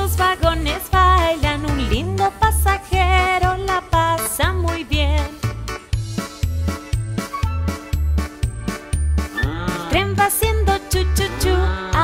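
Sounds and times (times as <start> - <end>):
low bass beat: 5.4 - 12.0
keyboard notes: 5.5 - 12.0.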